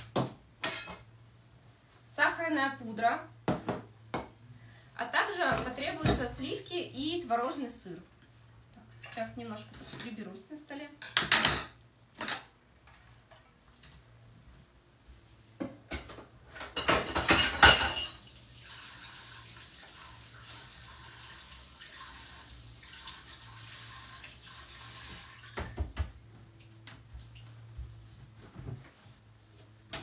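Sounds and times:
dishes and utensils clattering: 0:00.6 - 0:01.1, 0:11.0 - 0:13.6, 0:15.6 - 0:18.2
running water hiss: 0:18.2 - 0:25.7.

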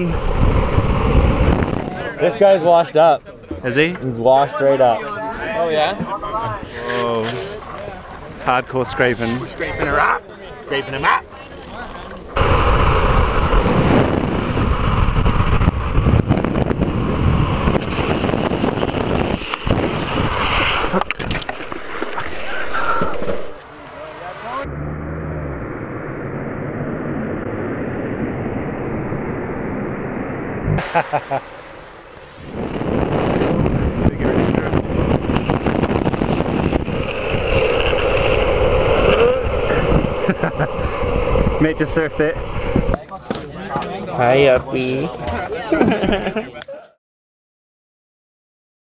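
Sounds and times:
wind buffeting microphone: 0:00.0 - 0:02.3, 0:12.4 - 0:24.7, 0:31.8 - 0:43.1
wheels rolling on asphalt: 0:11.4 - 0:24.6, 0:32.0 - 0:43.4
high hiss: 0:12.4 - 0:24.7, 0:30.8 - 0:43.1.

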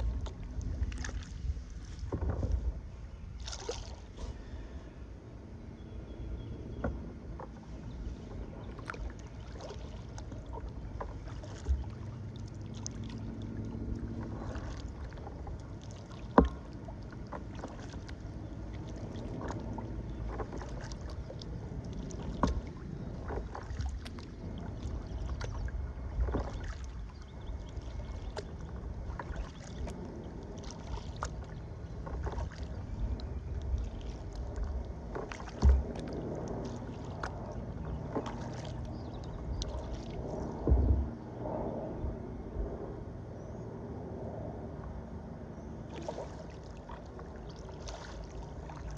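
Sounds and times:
paddle splashing in water: 0:00.0 - 0:05.0, 0:06.7 - 0:41.2, 0:45.8 - 0:48.9
wind rumble on microphone: 0:00.0 - 0:48.9.

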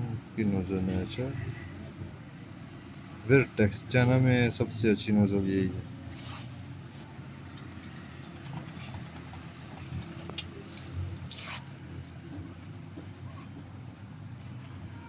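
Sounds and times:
small metal parts clicking: 0:07.8 - 0:11.8.

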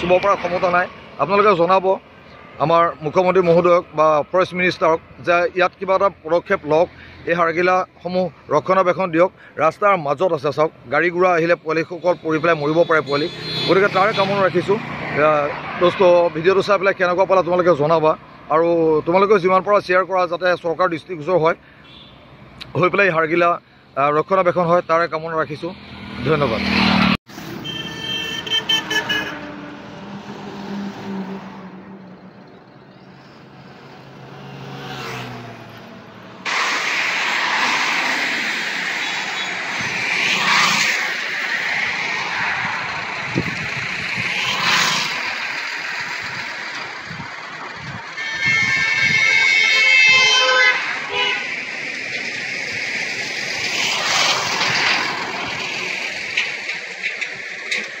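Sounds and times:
passing vehicles engine hum: 0:00.0 - 0:58.0
rush of traffic: 0:00.0 - 0:58.0
car horn beeping: 0:12.0 - 0:14.5, 0:21.8 - 0:22.2, 0:27.6 - 0:29.5, 0:48.1 - 0:51.6.

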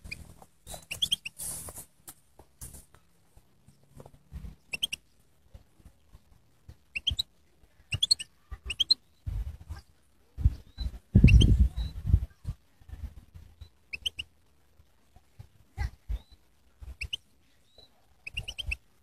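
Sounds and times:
bird twittering: 0:00.0 - 0:01.4, 0:04.7 - 0:05.0, 0:06.9 - 0:07.3, 0:07.9 - 0:09.0, 0:13.9 - 0:14.3, 0:17.0 - 0:17.2, 0:17.8 - 0:18.8.

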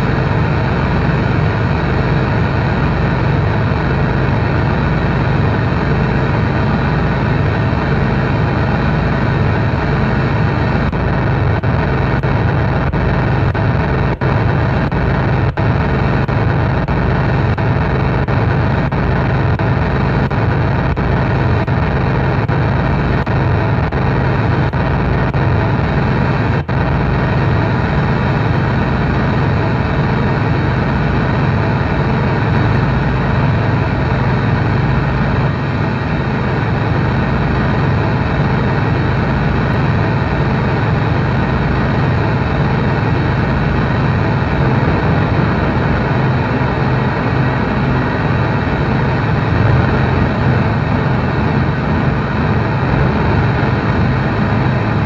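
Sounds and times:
dense distorted noise wall: 0:00.0 - 0:55.0
heavy low drone: 0:41.4 - 0:55.0.

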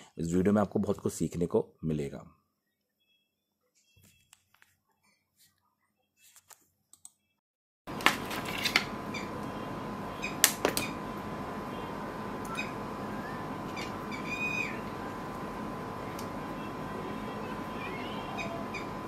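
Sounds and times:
thin high hum: 0:07.9 - 0:19.0.

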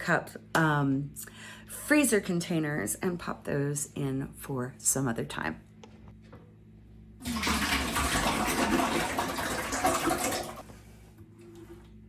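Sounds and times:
liquid pouring into a metal pot: 0:07.2 - 0:10.6.

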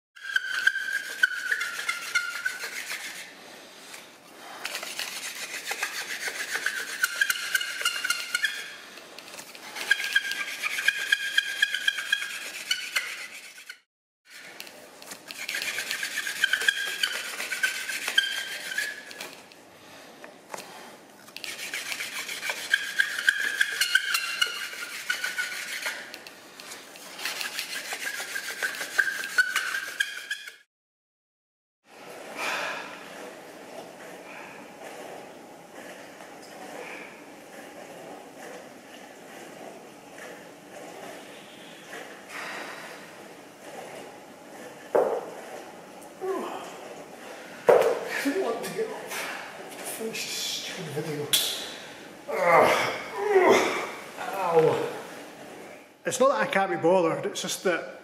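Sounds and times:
wooden spindle rasping on board: 0:00.2 - 0:03.4, 0:04.7 - 0:08.8, 0:09.4 - 0:14.6, 0:15.2 - 0:19.4, 0:21.4 - 0:26.2, 0:27.1 - 0:30.7.

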